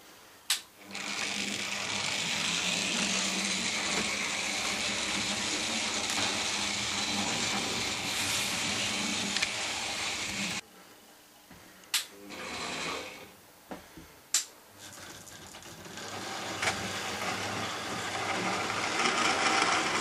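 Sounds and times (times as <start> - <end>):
model train wheels rolling: 0.8 - 10.6, 14.8 - 20.0
small electric motor whirring: 0.8 - 10.6, 14.9 - 20.0.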